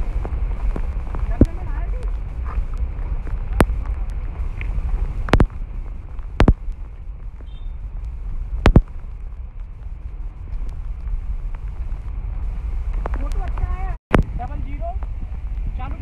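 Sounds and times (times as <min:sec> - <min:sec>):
steady low rumble: 0:00.0 - 0:16.0
footsteps knocking on wet rocks: 0:00.2 - 0:07.6, 0:08.6 - 0:09.1.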